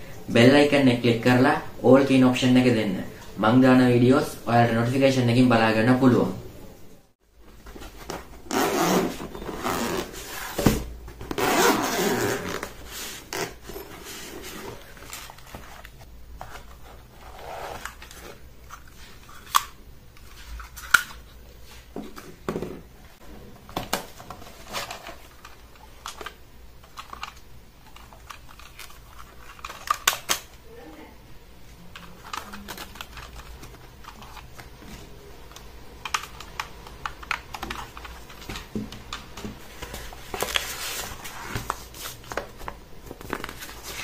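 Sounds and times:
zipper being drawn open: 0:08.5 - 0:10.6, 0:11.3 - 0:14.8
plastic clicks and rustles: 0:23.7 - 0:30.6, 0:31.9 - 0:40.8.

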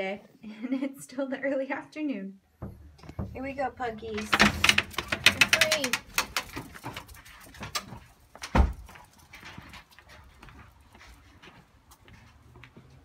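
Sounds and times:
screen door opening: 0:02.6 - 0:06.7
dog claws clicking on concrete: 0:04.5 - 0:10.4.

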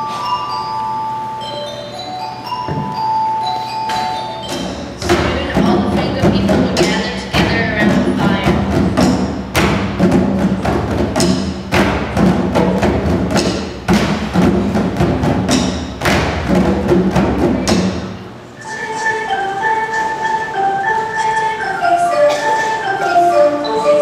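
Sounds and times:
hand drums played: 0:04.4 - 0:18.4
drumsticks beating exercise balls: 0:04.5 - 0:18.2.

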